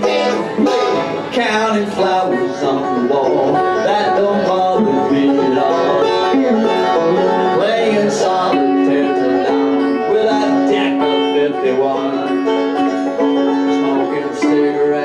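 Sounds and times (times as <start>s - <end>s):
banjo: 0.0s - 15.0s
electric guitar: 0.0s - 15.0s.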